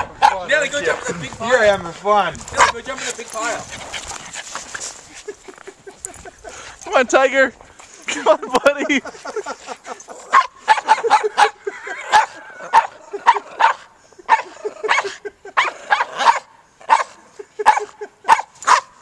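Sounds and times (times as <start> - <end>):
dogs barking and yipping: 0.0 - 0.7, 2.5 - 6.8, 9.1 - 19.0.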